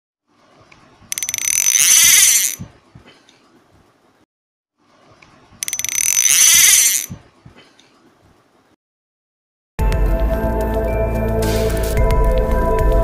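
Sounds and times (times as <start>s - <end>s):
rapid ratcheting clicks: 1.1s - 2.6s, 5.6s - 7.1s.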